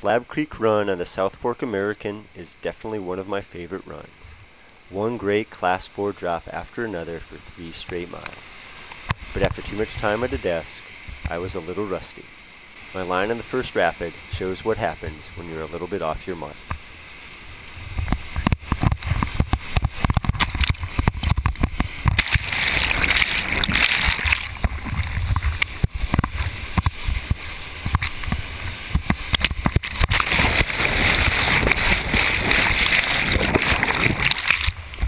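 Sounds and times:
whitewater rapid rushing: 0:04.8 - 0:35.0
water splashing against boat: 0:12.9 - 0:35.0.

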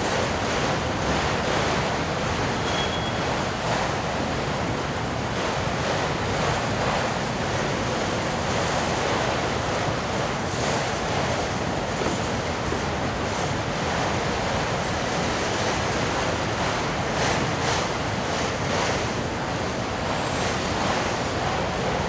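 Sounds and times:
train wheels rushing on rails: 0:00.0 - 0:22.0.

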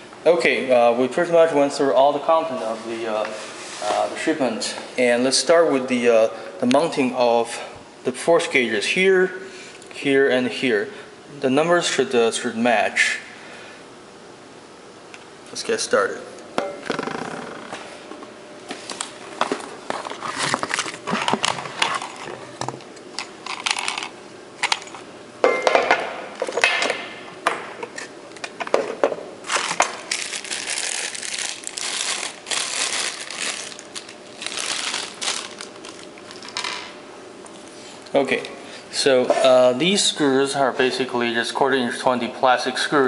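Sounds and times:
plastic packaging crinkling: 0:29.4 - 0:36.8.

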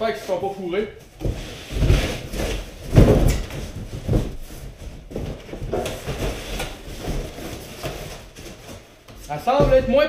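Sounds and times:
cardboard box thumping: 0:01.2 - 0:08.1
cardboard knocking and scraping: 0:01.2 - 0:10.0.

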